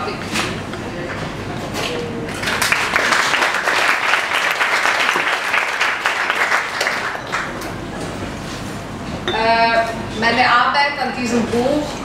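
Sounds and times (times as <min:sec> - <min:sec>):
audience applause: 0:02.3 - 0:07.6.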